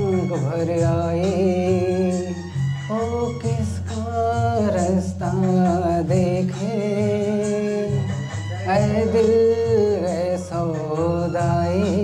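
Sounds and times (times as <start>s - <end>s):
low steady accompaniment: 0.0s - 12.0s
man singing into microphone: 0.0s - 12.0s.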